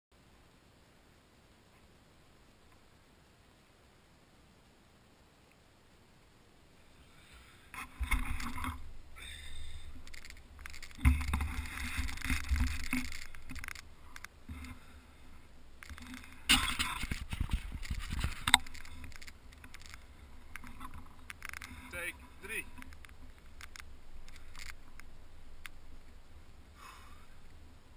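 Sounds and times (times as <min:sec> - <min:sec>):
handling noise: 0:09.6 - 0:14.9, 0:15.7 - 0:26.3
wind rumble on camera: 0:15.8 - 0:21.7.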